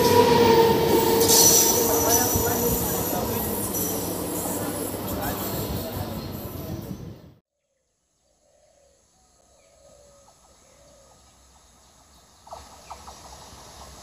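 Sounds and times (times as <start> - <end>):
approaching train rumble: 0.0 - 7.4, 10.3 - 14.0.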